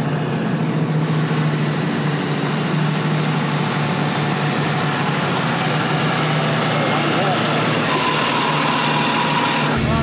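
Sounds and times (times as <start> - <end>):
truck engine idling: 0.0 - 10.0.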